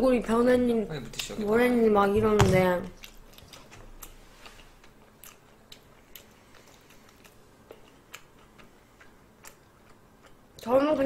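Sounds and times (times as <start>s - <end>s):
person chewing shrimp shells: 3.0s - 10.6s.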